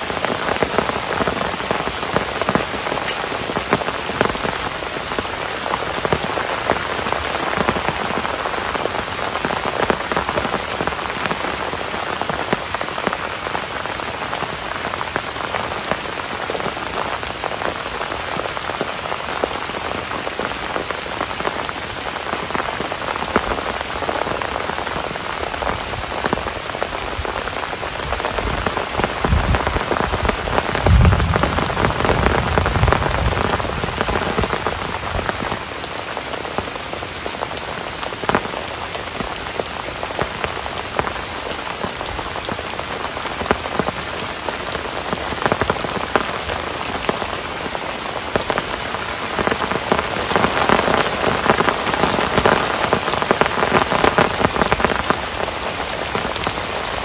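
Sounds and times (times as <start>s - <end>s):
heavy rain on foliage: 0.0s - 57.0s
low rumble: 30.8s - 33.4s.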